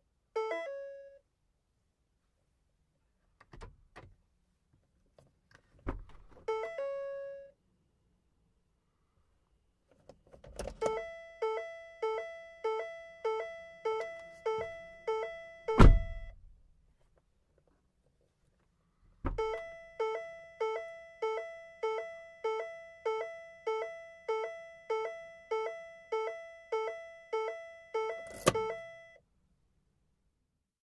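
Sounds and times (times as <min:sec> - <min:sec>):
car warning chime two-note beep: 0:00.4 - 0:01.2, 0:10.9 - 0:16.4, 0:19.4 - 0:29.2
car door thunk: 0:15.8 - 0:16.2.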